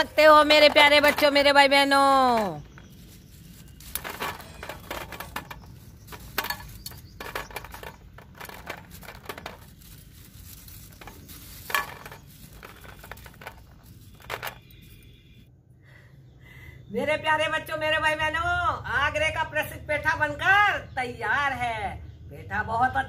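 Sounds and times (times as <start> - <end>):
sweets dropping onto steel plate: 0.1 - 15.0.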